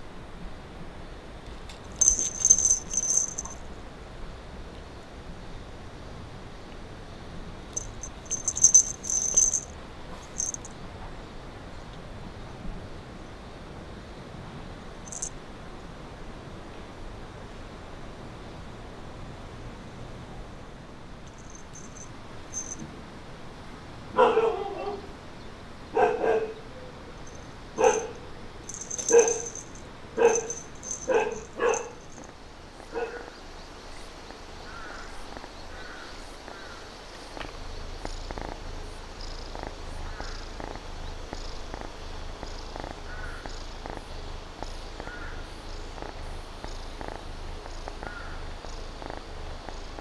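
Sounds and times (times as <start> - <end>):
dog barking: 24.2 - 25.1, 26.0 - 26.6, 27.8 - 28.2, 29.1 - 29.4, 30.2 - 32.0, 32.9 - 33.3
kitten purring: 37.4 - 44.7, 45.9 - 48.0, 48.9 - 50.0.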